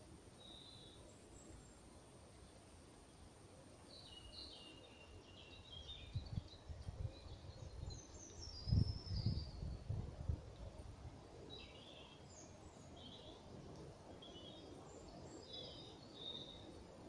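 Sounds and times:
small birds twittering: 0:00.4 - 0:01.8, 0:03.8 - 0:10.0, 0:11.4 - 0:16.9
wind buffeting microphone: 0:05.9 - 0:11.0.

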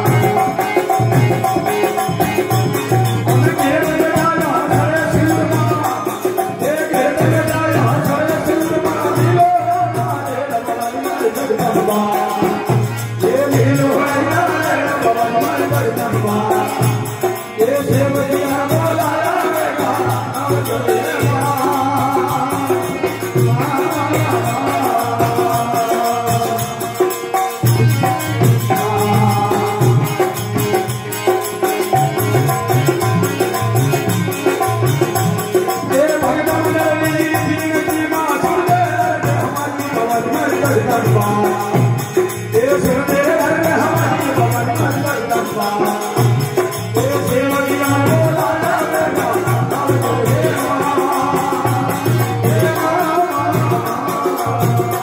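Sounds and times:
harmonium: 0:00.0 - 0:55.0
man singing into a microphone: 0:00.0 - 0:55.0
steady percussion beat: 0:00.0 - 0:55.0.

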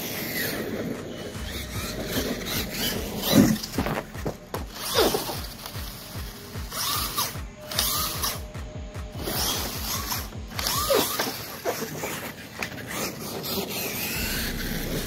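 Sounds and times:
drivetrain ratcheting clatter: 0:00.0 - 0:08.6
electric motor whining: 0:00.0 - 0:15.0.

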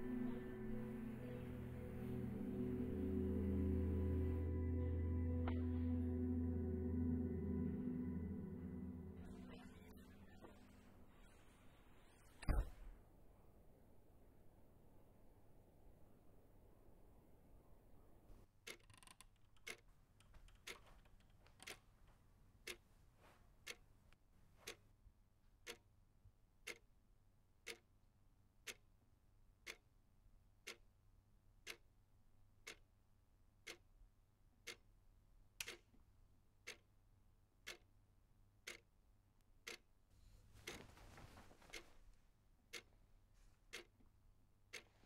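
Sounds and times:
clock ticking: 0:00.0 - 0:10.8, 0:18.6 - 0:21.8, 0:22.6 - 0:22.8, 0:23.6 - 0:23.8, 0:25.6 - 0:25.9, 0:26.6 - 0:26.9, 0:27.6 - 0:28.0, 0:28.6 - 0:28.9, 0:29.6 - 0:30.0, 0:30.6 - 0:31.0, 0:31.6 - 0:32.0, 0:32.6 - 0:32.9, 0:33.6 - 0:33.9, 0:34.6 - 0:34.9, 0:35.6 - 0:36.0, 0:36.6 - 0:37.0, 0:37.6 - 0:38.0, 0:38.6 - 0:39.0, 0:39.6 - 0:39.9, 0:40.6 - 0:41.9, 0:42.7 - 0:43.0, 0:43.7 - 0:44.0.

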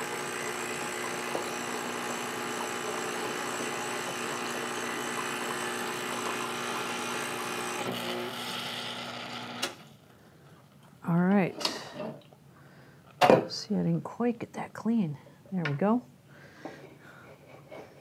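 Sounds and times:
espresso machine pump buzzing: 0:00.0 - 0:09.8.

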